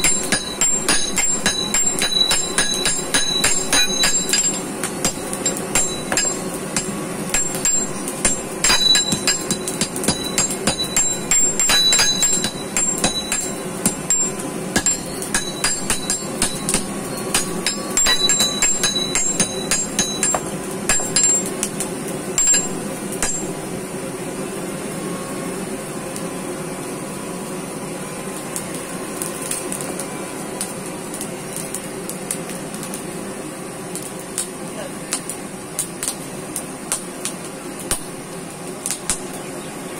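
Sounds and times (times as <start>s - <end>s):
hammers striking iron on anvil: 0.0s - 21.8s, 22.4s - 23.6s, 37.9s - 38.1s, 38.9s - 39.3s.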